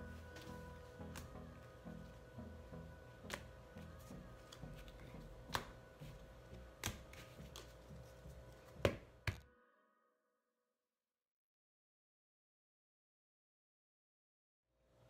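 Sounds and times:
quiet music with pulsing beat: 0.0s - 9.4s.

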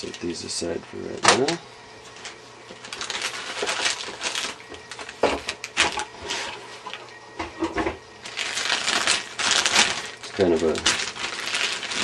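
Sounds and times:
plastic bag crinkling: 2.2s - 7.0s, 8.2s - 12.0s.

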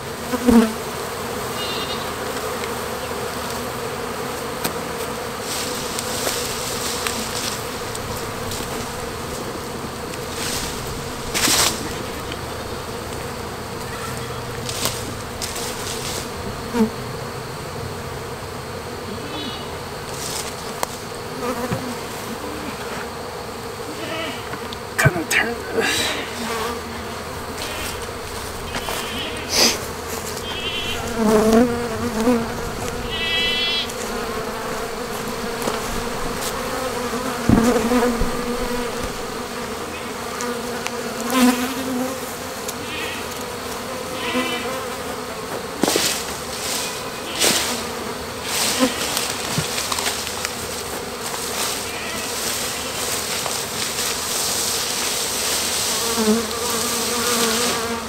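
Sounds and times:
bees buzzing: 0.0s - 58.0s.

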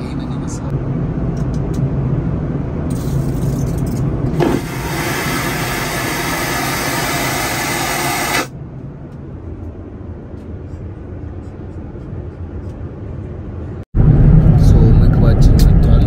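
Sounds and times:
airliner cabin drone: 0.0s - 16.0s
vacuum toilet flushing whoosh: 4.4s - 8.5s.

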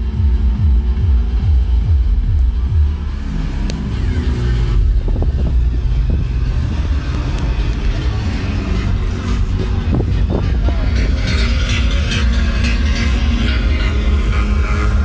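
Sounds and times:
deep bass from subwoofers: 0.0s - 15.0s.

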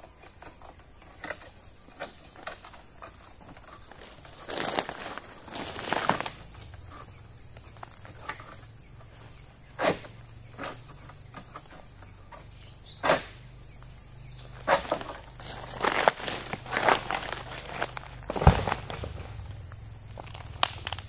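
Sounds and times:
high-pitched insect drone: 0.0s - 21.0s
sharp rustling scuffs: 14.4s - 19.6s.

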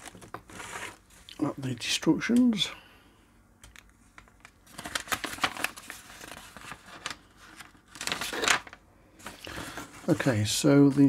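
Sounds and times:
paper rustling and crinkling: 0.0s - 1.3s, 3.7s - 11.0s.

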